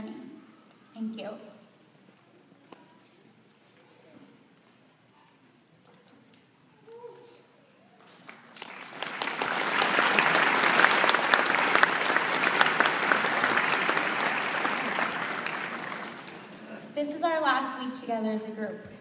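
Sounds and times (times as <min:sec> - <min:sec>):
audience applauding: 0:08.1 - 0:16.7.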